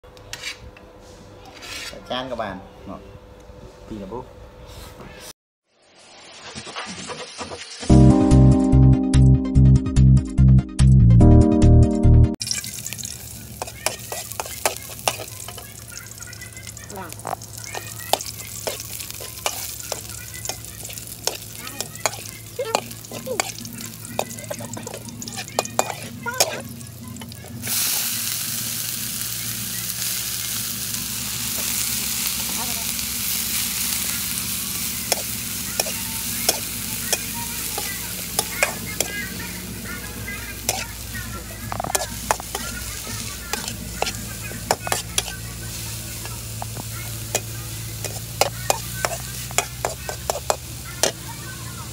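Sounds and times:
metal spatula scraping a wok: 0:00.3 - 0:00.7, 0:01.5 - 0:02.1, 0:13.5 - 0:15.8, 0:17.2 - 0:27.6, 0:33.2 - 0:39.3, 0:40.2 - 0:51.3
loud sizzle of greens: 0:05.6 - 0:07.9, 0:12.4 - 0:51.9
garlic frying in oil: 0:05.7 - 0:07.9, 0:12.4 - 0:51.9.

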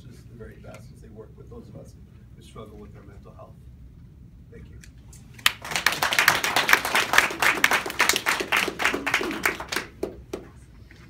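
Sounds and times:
audience applauding: 0:05.4 - 0:10.4.

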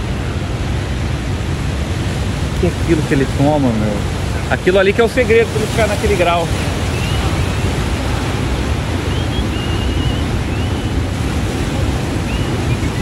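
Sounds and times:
surf breaking on rocks: 0:00.0 - 0:13.0
wind buffeting microphone: 0:00.0 - 0:13.0
faint high wavering whistles: 0:06.8 - 0:08.0, 0:09.0 - 0:11.1, 0:12.2 - 0:13.0.

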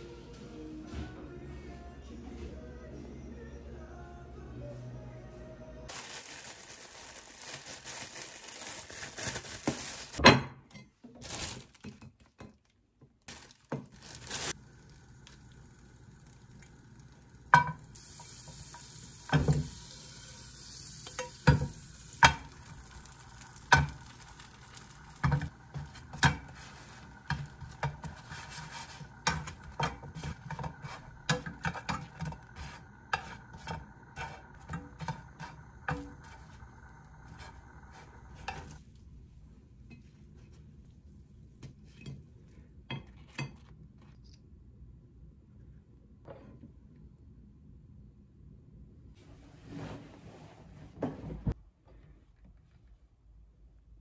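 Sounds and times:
plastic bag rustling: 0:05.9 - 0:10.2, 0:11.1 - 0:12.1, 0:13.3 - 0:15.6, 0:22.4 - 0:38.8
butter sizzling in a frying pan: 0:14.1 - 0:38.8.

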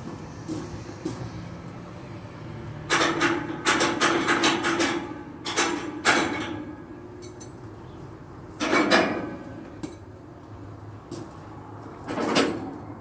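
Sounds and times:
sharp knocks and clanks: 0:02.8 - 0:07.6, 0:08.6 - 0:10.1, 0:12.0 - 0:12.9.

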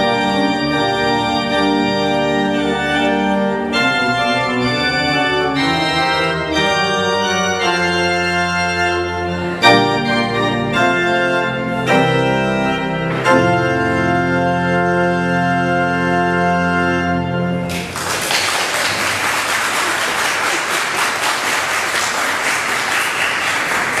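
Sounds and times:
pipe organ chords: 0:00.0 - 0:18.0
applause: 0:17.7 - 0:24.0.

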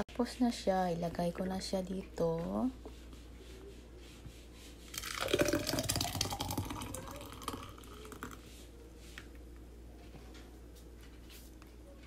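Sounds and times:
smoothie pouring and gurgling: 0:04.9 - 0:08.4.

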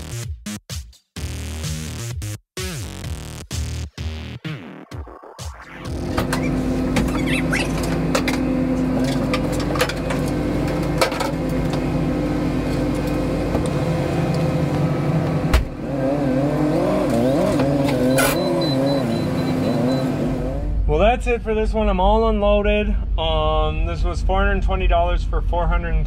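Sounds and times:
vehicle engine idling: 0:05.9 - 0:15.8
forklift engine revving: 0:05.9 - 0:20.9.

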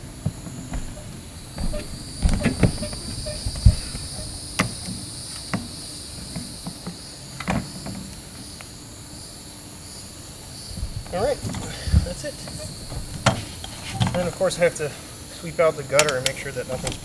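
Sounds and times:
knocks and clunks on roof: 0:00.0 - 0:08.1, 0:10.8 - 0:14.3
high-pitched insect chorus: 0:00.0 - 0:17.0.

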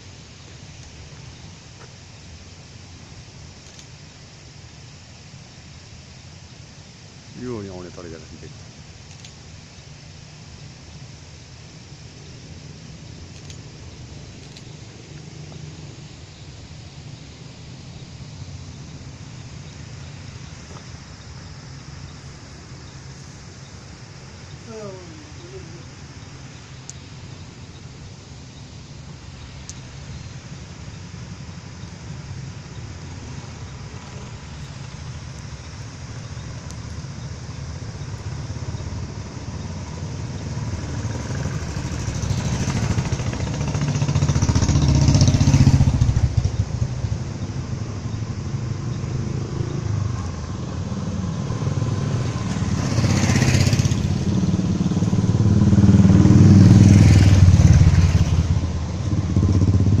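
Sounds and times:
motorcycles riding past: 0:32.2 - 1:00.0.

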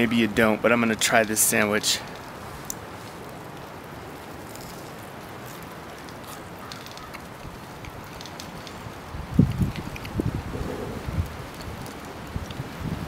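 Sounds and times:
faint crackles: 0:00.0 - 0:13.0
wind hissing: 0:08.8 - 0:13.0.

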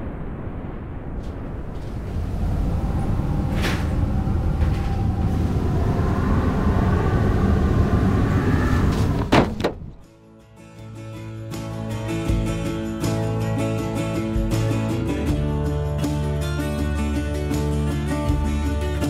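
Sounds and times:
faint rising tone: 0:00.0 - 0:09.3
low rumble: 0:00.0 - 0:10.1.

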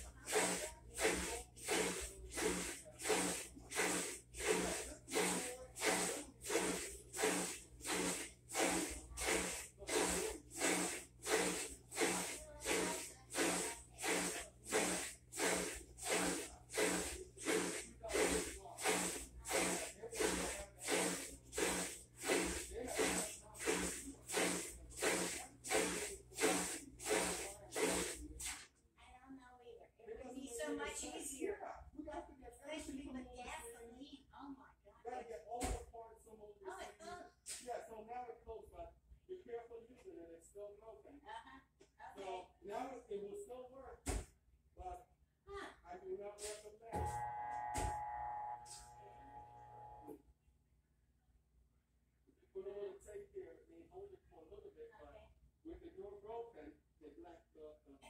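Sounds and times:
washing machine agitating water: 0:00.0 - 0:28.7.

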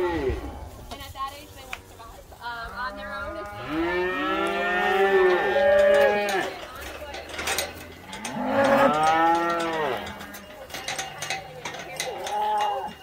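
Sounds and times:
cattle mooing: 0:02.8 - 0:06.6, 0:08.0 - 0:10.4.

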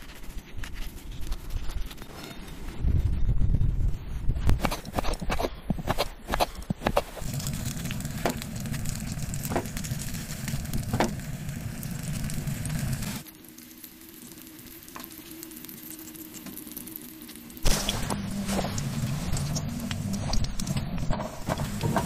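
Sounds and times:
sausage sizzling in a skillet: 0:07.2 - 0:22.0.

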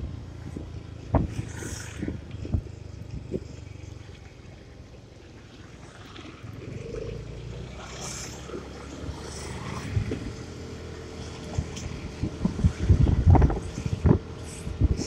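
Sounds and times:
motorcycle engine rumble: 0:00.0 - 0:15.0
passing air rumble: 0:06.4 - 0:15.0.

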